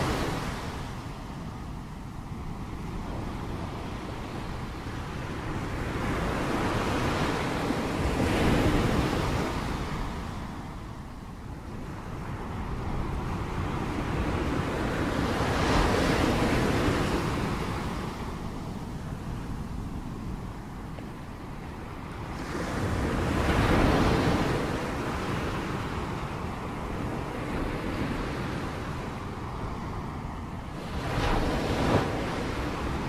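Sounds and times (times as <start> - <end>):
ocean waves breaking: 11.6 - 33.0.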